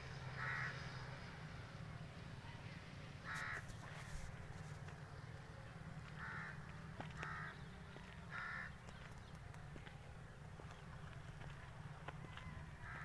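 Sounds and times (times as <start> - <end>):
crow cawing: 0.3 - 0.8, 3.2 - 3.7, 6.2 - 7.7, 8.3 - 8.8, 12.8 - 13.0.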